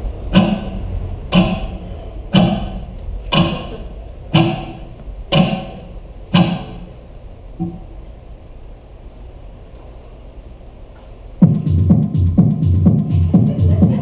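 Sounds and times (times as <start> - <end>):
low percussive hits: 0.0 - 7.0.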